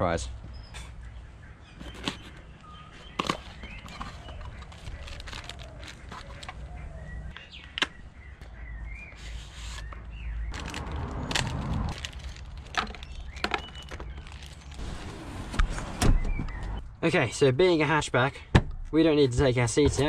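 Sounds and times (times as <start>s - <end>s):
birds chirping: 0.0s - 18.3s
plastic bags crinkling: 3.5s - 6.6s, 10.5s - 14.8s.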